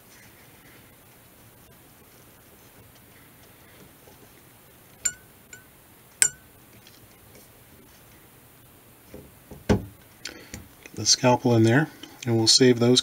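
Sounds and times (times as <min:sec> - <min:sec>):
scalpel clicks with ring: 0:05.1 - 0:06.5.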